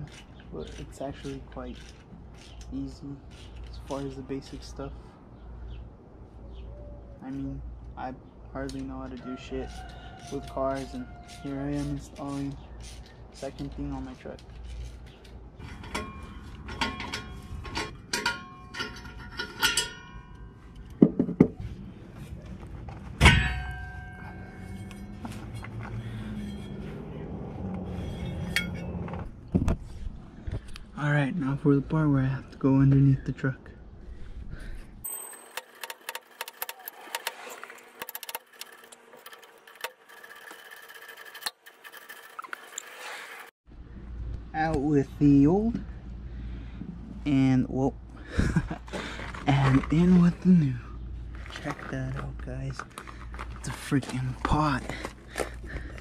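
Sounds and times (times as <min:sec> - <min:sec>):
loud ringing metal clang: 0:15.7 - 0:20.6, 0:23.2 - 0:25.2
metal tool clinks and taps: 0:15.8 - 0:21.0.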